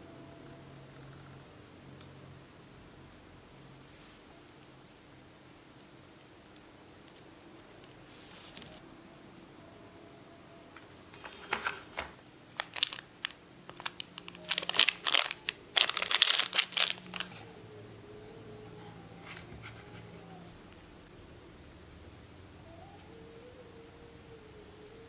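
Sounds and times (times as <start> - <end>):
plastic packaging crinkling: 8.3 - 8.8, 11.1 - 17.4.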